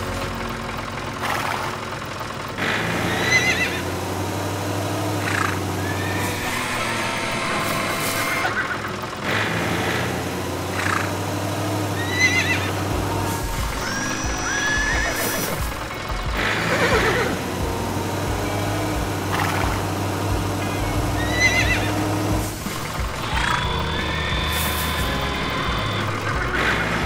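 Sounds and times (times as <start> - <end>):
tractor engine humming: 0.0 - 27.0
horses whinnying: 2.6 - 3.9, 5.2 - 9.5, 11.9 - 17.4, 20.6 - 22.2, 23.1 - 27.0.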